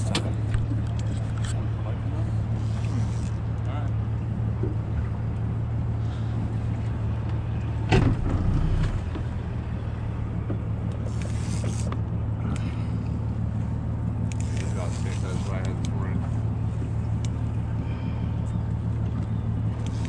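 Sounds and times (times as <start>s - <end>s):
outboard motor humming: 0.0s - 20.0s.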